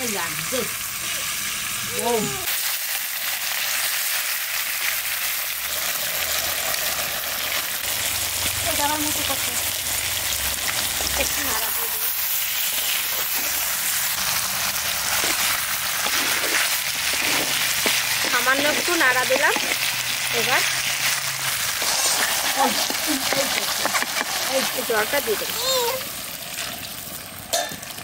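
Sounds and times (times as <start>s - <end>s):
fish sizzling in oil: 0.0s - 28.0s
spatula stirring: 12.3s - 25.6s.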